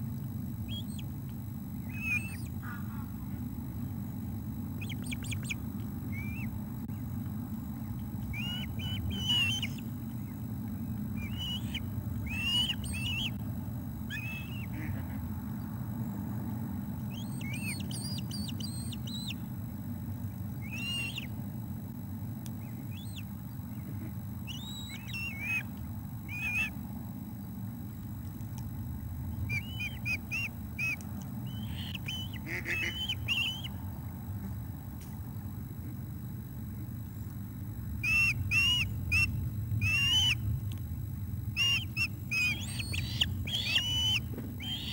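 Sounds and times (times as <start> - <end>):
steady low rumble: 0.0 - 44.7
ospreys chirping whistles: 11.2 - 13.4, 17.2 - 19.4, 29.5 - 33.7, 38.0 - 40.4, 41.6 - 44.9.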